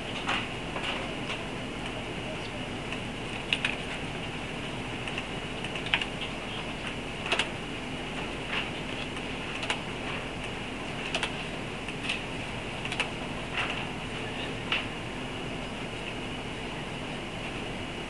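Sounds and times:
sharp light clicks: 0:12.8 - 0:13.1.

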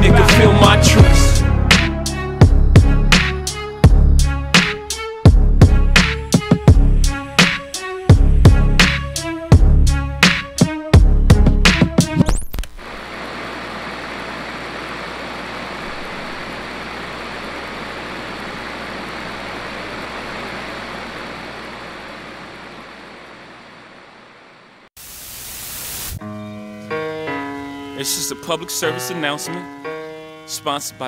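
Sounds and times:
piano music: 0:00.0 - 0:12.2, 0:26.2 - 0:31.0
steady hiss: 0:25.0 - 0:26.2.

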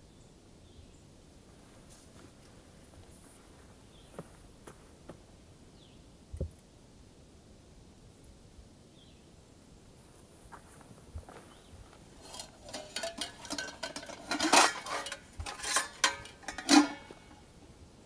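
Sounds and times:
metal pot lid clinking: 0:12.2 - 0:17.4.

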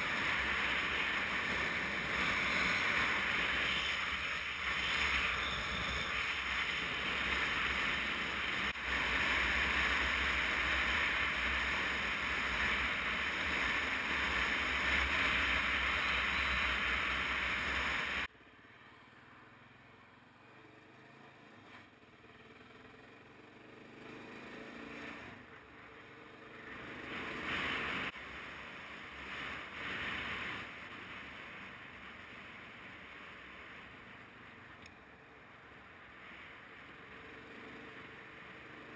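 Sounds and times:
motorcycle engine: 0:00.0 - 0:18.3, 0:19.2 - 0:31.6.

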